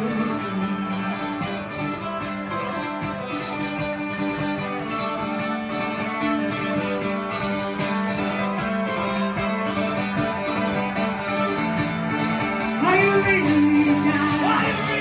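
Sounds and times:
acoustic guitar strumming: 0.0s - 15.0s
small plucked string instrument: 0.0s - 15.0s.

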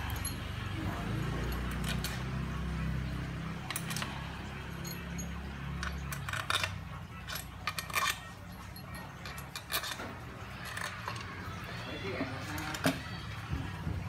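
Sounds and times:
metal bolts clinking: 0.0s - 13.1s.

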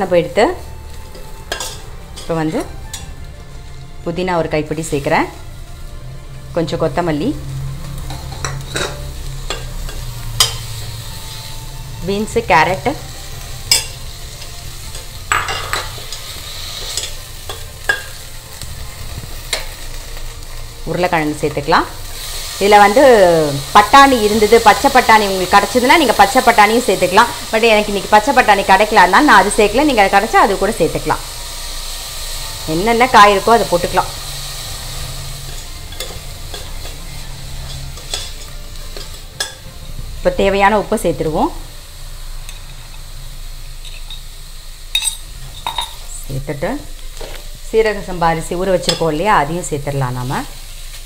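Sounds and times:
vegetables sizzling in pot: 0.0s - 51.0s.

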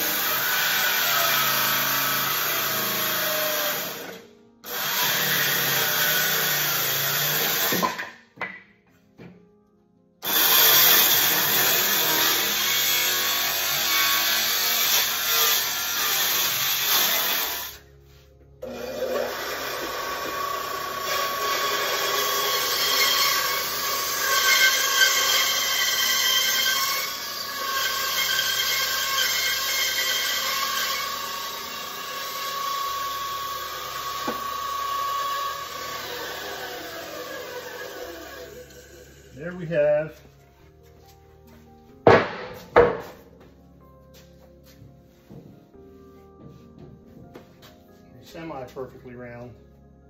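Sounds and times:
bandsaw whining: 0.0s - 8.1s, 10.2s - 17.9s, 18.6s - 40.2s
circular saw cutting wood: 0.0s - 8.1s, 10.2s - 17.9s, 18.6s - 40.2s.

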